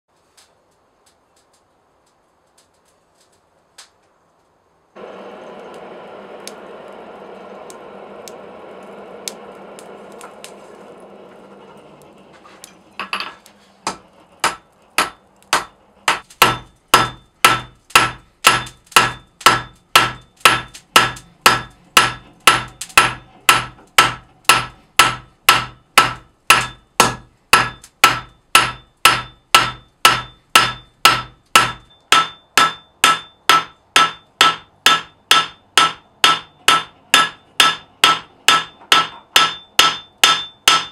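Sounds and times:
forge fire rushing: 5.0s - 13.0s
hammer striking steel on anvil: 13.0s - 40.9s.

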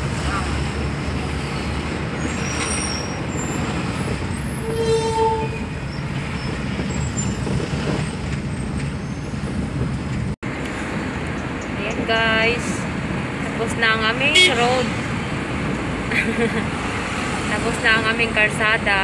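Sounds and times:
road and engine noise: 0.0s - 19.0s
vehicle horn toot: 4.6s - 5.6s, 14.3s - 14.6s.

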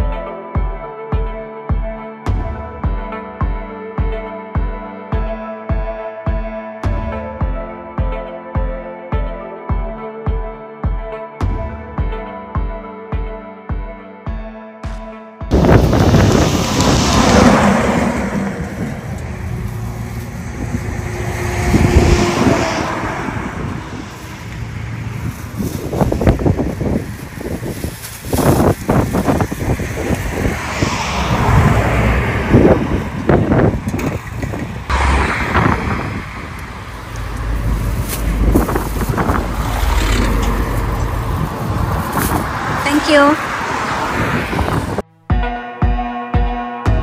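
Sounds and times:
motor vehicle passing: 15.5s - 45.0s
wind rumbling on microphone: 15.5s - 45.0s.

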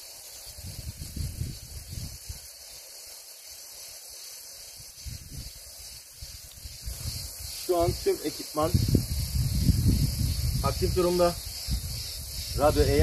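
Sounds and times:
steady high hiss: 0.0s - 13.0s
wind buffeting microphone: 0.6s - 2.5s, 4.9s - 13.0s.

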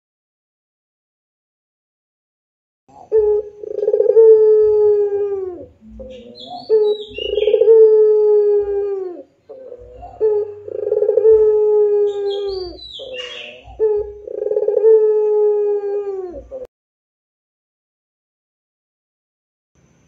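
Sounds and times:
dove cooing: 2.9s - 16.7s
high bird chirps: 5.8s - 7.8s, 12.0s - 14.6s.

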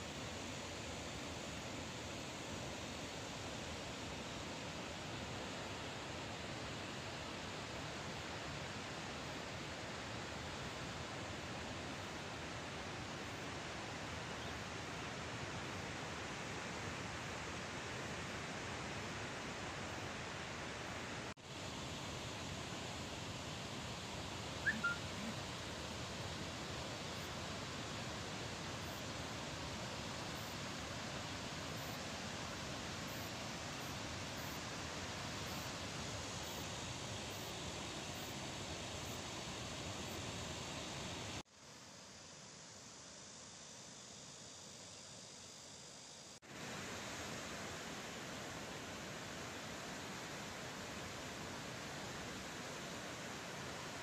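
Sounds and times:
water rushing in a steady roar: 0.0s - 44.6s, 46.4s - 54.0s.

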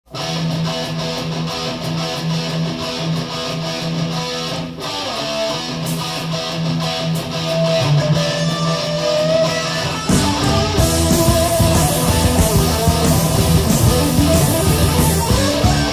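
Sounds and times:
electric guitar riff: 0.1s - 15.9s
full band hit: 9.4s - 15.9s.

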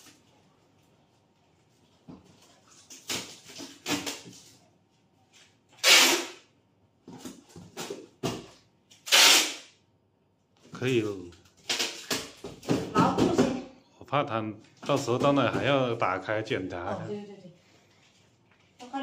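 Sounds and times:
packing tape pulled from dispenser: 5.7s - 6.5s, 8.9s - 9.8s, 11.6s - 12.3s.

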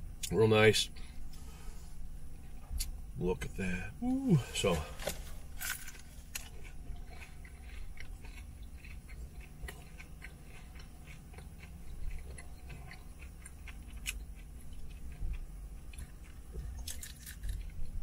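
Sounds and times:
low hum: 0.0s - 18.0s
crunchy chewing: 4.6s - 18.0s.

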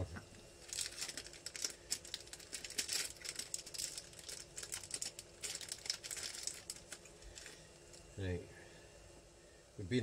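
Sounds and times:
plastic packet crinkling: 0.6s - 8.0s.

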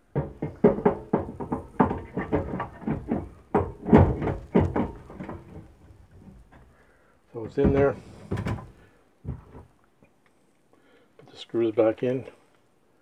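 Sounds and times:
metal knocks and clunks: 0.0s - 9.8s.

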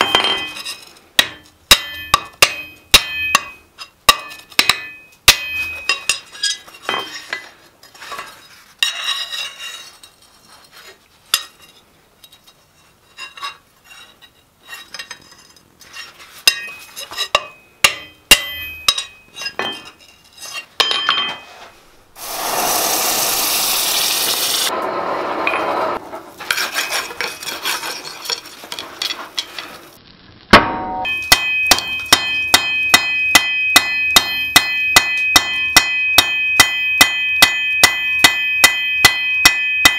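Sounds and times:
hammer striking steel on anvil: 0.0s - 6.3s, 16.5s - 20.0s, 30.6s - 39.9s.

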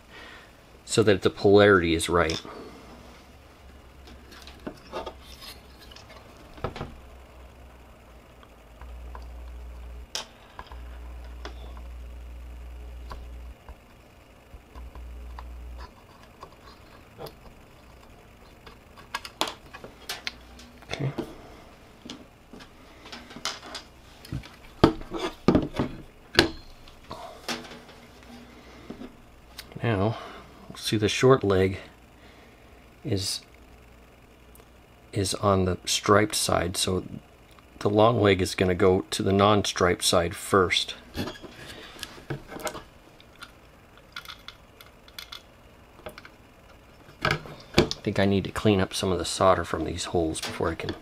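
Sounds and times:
knocks and clatter on work mat: 24.8s - 26.6s.

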